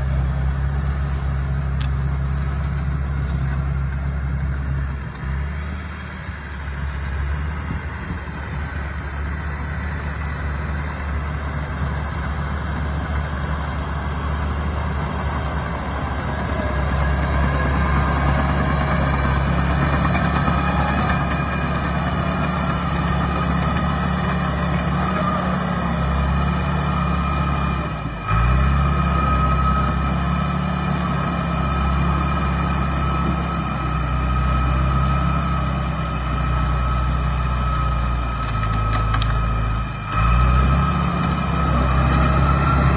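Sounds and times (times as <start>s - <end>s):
diesel engine of crawler dozer: 0.0s - 42.9s.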